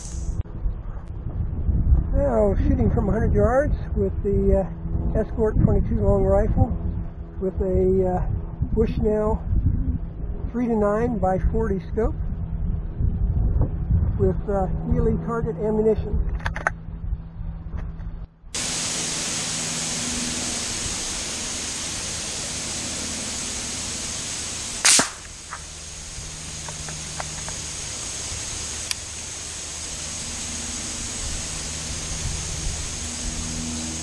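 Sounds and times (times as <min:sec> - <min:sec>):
steady hiss: 0:00.0 - 0:00.4, 0:18.6 - 0:34.0
rifle shot crack: 0:24.8 - 0:25.7.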